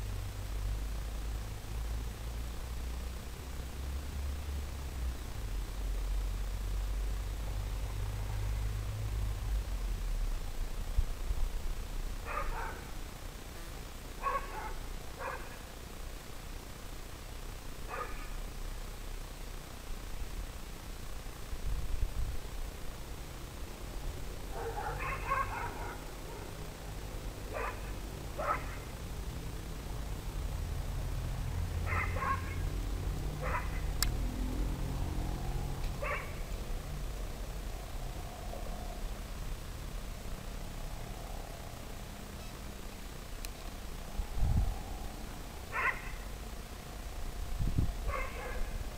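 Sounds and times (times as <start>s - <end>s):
steady background hiss: 0.0s - 48.9s
dog barking: 12.2s - 12.9s, 14.2s - 15.6s, 17.9s - 18.4s, 24.5s - 26.5s, 27.5s - 28.8s, 31.8s - 32.6s, 33.4s - 33.9s, 36.0s - 36.4s, 45.7s - 46.2s, 48.0s - 48.8s
low rumble: 43.1s - 48.1s.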